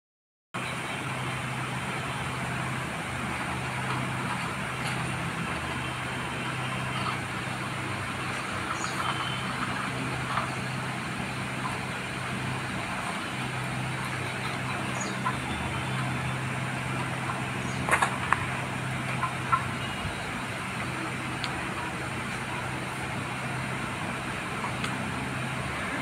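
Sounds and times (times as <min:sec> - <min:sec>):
road and tyre noise: 0:00.6 - 0:26.0
vehicle engine hum: 0:00.6 - 0:26.0.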